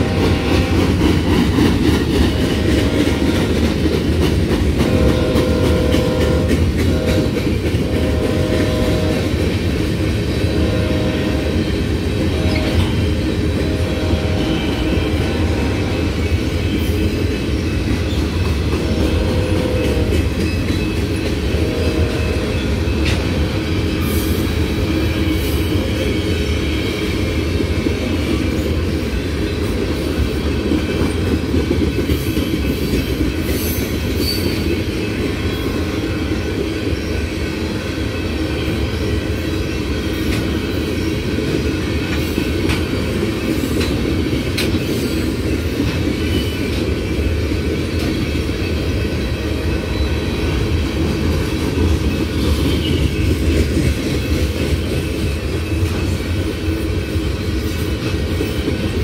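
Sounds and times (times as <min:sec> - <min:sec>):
steel wheels rumbling on rails: 0:00.0 - 0:59.0.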